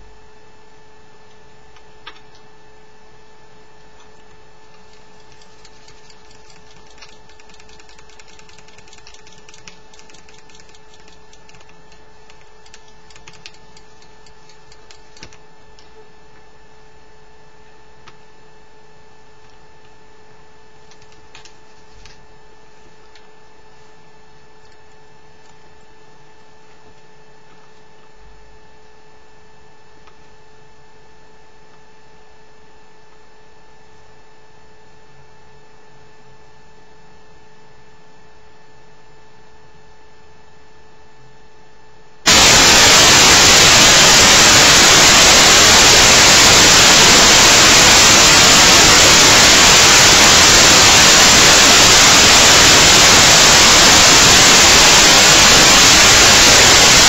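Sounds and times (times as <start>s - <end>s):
loud static hiss: 3.8s - 16.0s, 42.2s - 57.0s
high electronic whine: 4.0s - 15.5s, 42.2s - 57.0s.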